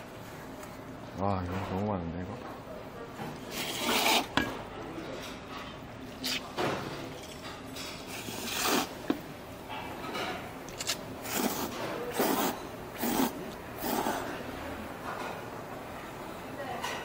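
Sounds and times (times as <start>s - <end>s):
person slurping noodles: 3.5s - 4.3s, 8.1s - 9.0s, 10.8s - 14.4s.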